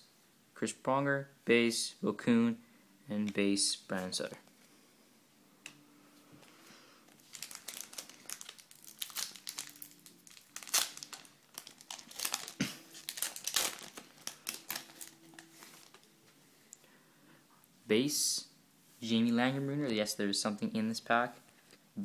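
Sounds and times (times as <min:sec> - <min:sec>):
wrapper being torn and crinkled: 0:07.1 - 0:16.1.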